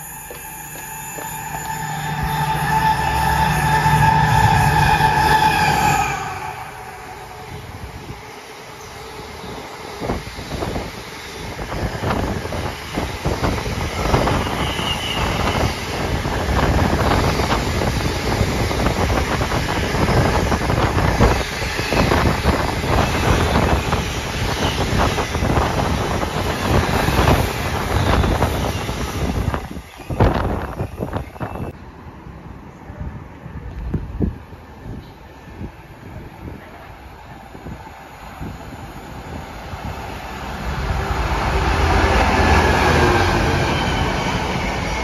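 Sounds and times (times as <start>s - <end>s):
wind buffeting microphone: 10.0s - 31.8s.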